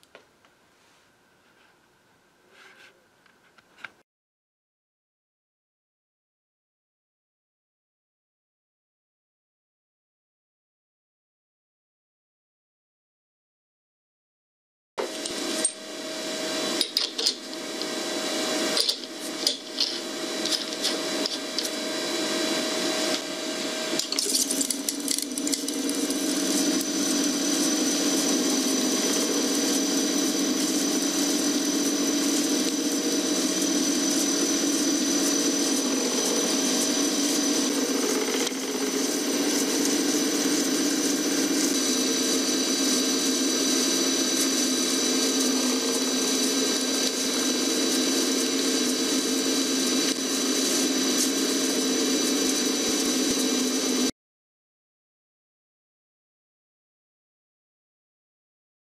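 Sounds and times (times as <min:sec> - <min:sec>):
coil winding machine whirring: 0:15.0 - 0:54.1.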